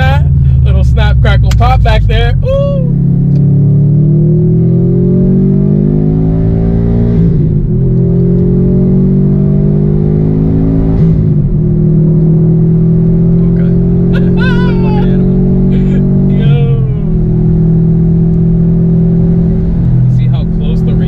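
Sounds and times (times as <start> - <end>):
car engine accelerating: 0.0 - 21.0.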